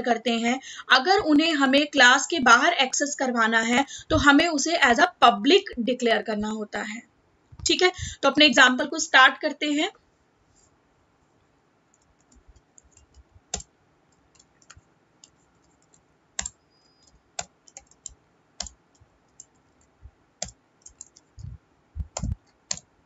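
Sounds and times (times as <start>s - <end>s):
computer keyboard typing: 11.9s - 22.9s.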